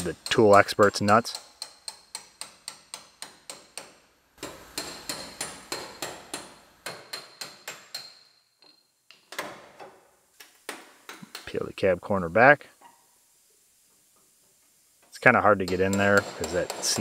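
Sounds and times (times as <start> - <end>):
hammer striking steel chisel: 0.0 - 8.8, 15.7 - 17.0.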